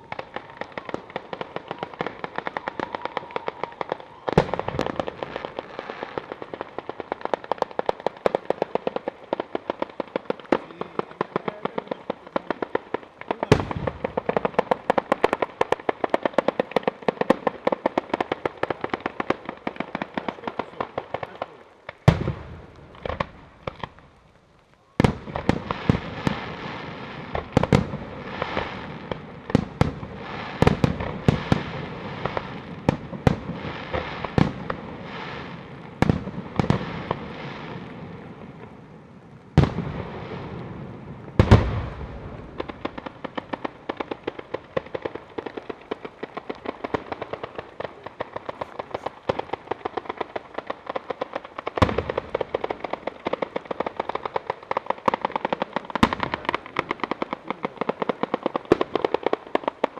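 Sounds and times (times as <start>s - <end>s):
crackling haze: 0.0s - 59.9s
rattle of firecrackers exploding: 0.0s - 59.9s
firecracker bangs: 9.4s - 16.3s.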